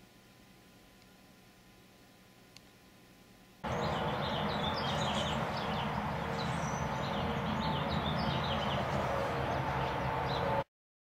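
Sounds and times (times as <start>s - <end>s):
outdoor background hum: 0.0s - 10.7s
small birds chirping: 3.6s - 10.6s.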